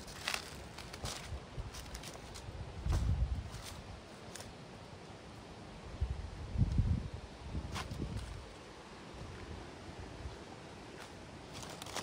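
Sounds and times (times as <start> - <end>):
wind rumbling on microphone: 0.0 - 4.1, 5.8 - 10.6.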